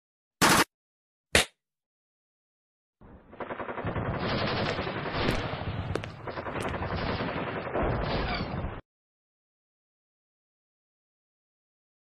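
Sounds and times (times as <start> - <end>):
machine-gun fire: 0.4 - 0.7, 3.2 - 8.6.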